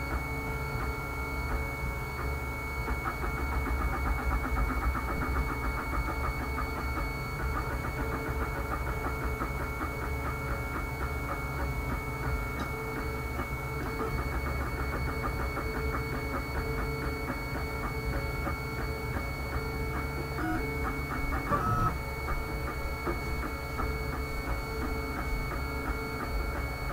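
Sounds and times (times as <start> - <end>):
steady high whine: 16.2 - 26.9
stepper motor tones: 18.7 - 26.9.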